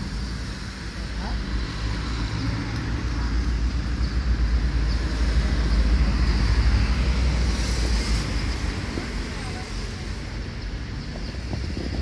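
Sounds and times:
traffic rumble: 0.0 - 12.0
wind buffeting microphone: 4.4 - 12.0.

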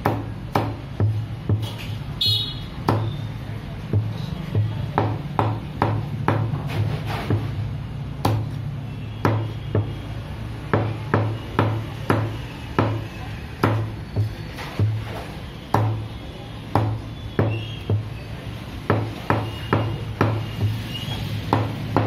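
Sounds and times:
cleaver chopping on wooden block: 0.0 - 1.8, 2.8 - 3.2, 3.9 - 7.5, 8.2 - 8.6, 9.2 - 10.0, 10.6 - 15.1, 15.7 - 18.1, 18.8 - 22.0.

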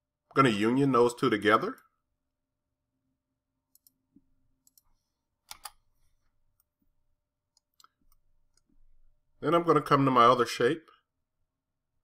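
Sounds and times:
computer mouse clicks: 3.7 - 4.0, 4.6 - 5.8, 7.5 - 8.7.

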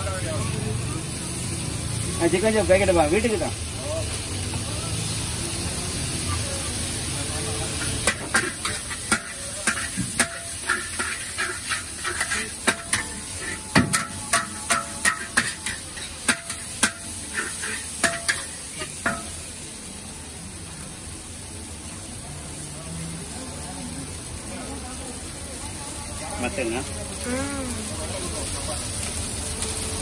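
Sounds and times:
metal spatula clanking in wok: 7.8 - 19.4.

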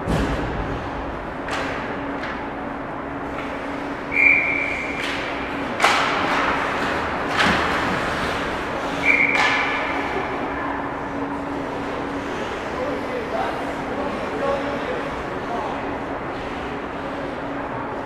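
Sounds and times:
low steady rink hum: 0.0 - 18.0
referee whistle blasts: 4.1 - 5.0, 9.0 - 9.6.

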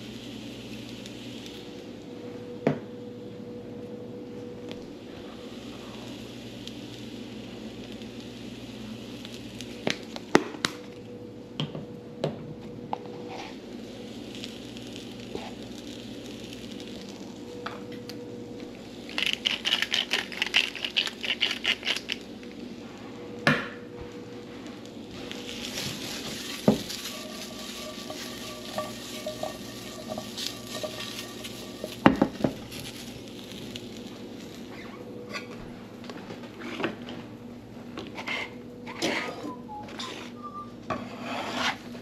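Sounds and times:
steady hum: 0.0 - 38.9
utensils clinking on cookware: 25.4 - 33.2.

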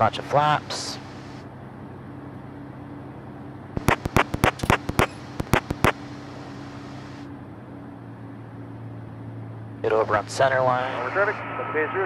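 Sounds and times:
sharp clicks: 3.8 - 6.0
aircraft piston engine running: 3.8 - 7.0.

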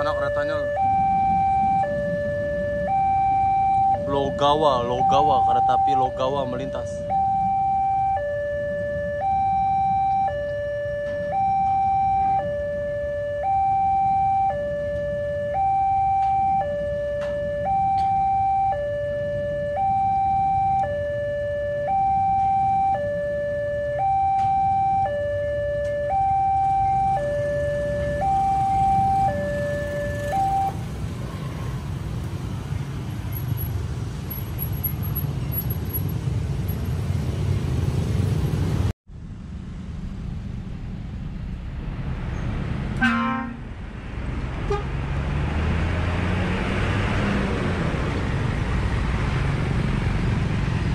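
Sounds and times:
two-tone crossing alarm: 0.0 - 30.9
motorcycles and cars idling: 24.0 - 41.7.

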